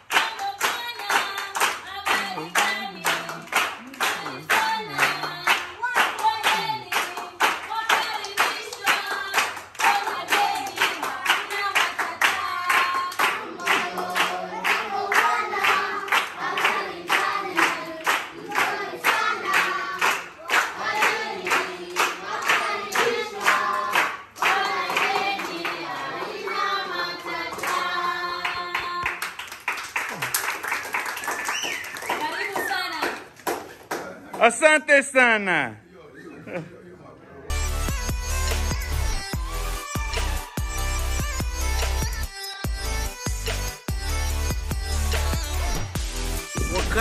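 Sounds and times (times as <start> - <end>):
rhythmic hand clapping: 0.0 - 34.6, 37.5 - 47.0
woman singing: 0.2 - 15.8, 26.4 - 29.2
children singing: 13.3 - 28.8.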